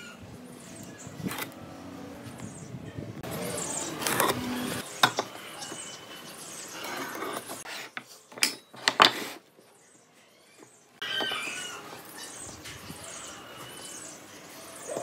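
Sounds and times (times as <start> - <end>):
handling wood and steel: 4.0 - 9.4.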